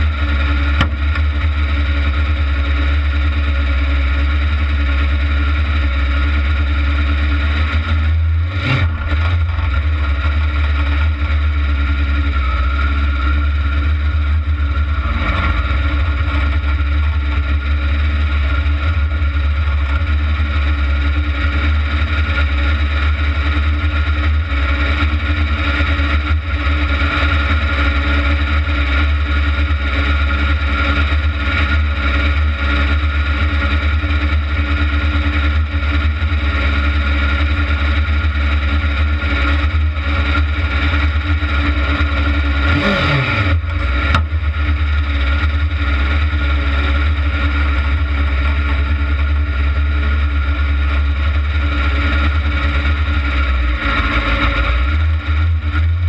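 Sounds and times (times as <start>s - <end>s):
loud kart engine running: 0.0s - 56.0s
knock: 0.8s - 1.3s.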